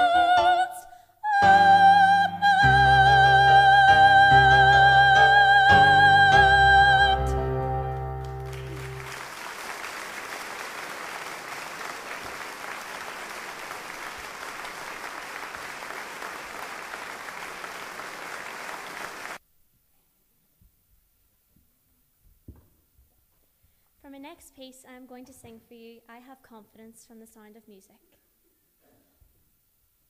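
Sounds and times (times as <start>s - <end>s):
instrumental accompaniment: 1.4s - 9.2s
audience applauding: 7.9s - 19.4s.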